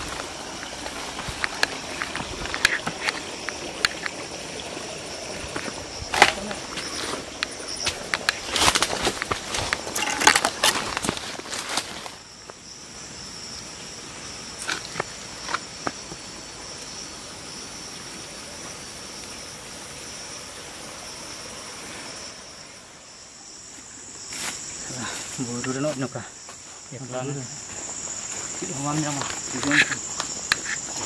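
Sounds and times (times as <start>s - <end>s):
footsteps crunching dry leaves: 0.0s - 3.3s, 6.6s - 12.2s, 27.6s - 31.0s
high insect chorus: 0.0s - 31.0s
twigs snapping: 7.4s - 12.1s.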